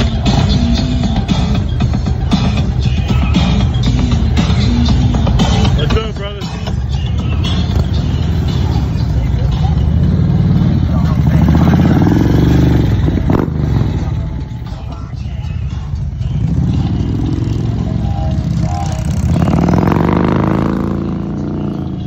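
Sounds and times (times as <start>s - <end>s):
motorcycles revving past: 10.0s - 14.2s, 16.4s - 22.0s.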